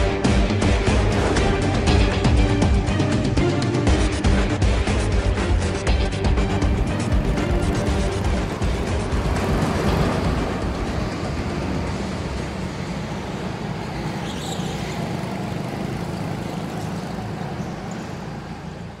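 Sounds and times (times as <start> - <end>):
go-kart engines running: 5.5 - 19.0.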